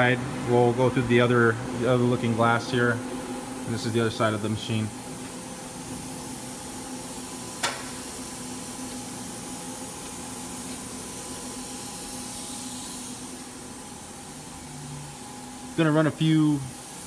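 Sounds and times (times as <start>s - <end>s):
machine shop equipment hum: 0.0s - 17.0s
sharp click: 7.6s - 8.0s.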